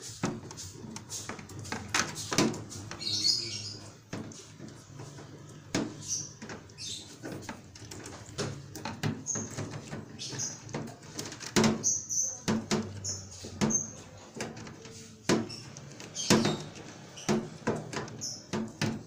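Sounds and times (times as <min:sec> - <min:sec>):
rustling of wires and tape: 0:00.0 - 0:11.9
high chirp-like squeaks: 0:02.2 - 0:05.2, 0:05.9 - 0:18.5.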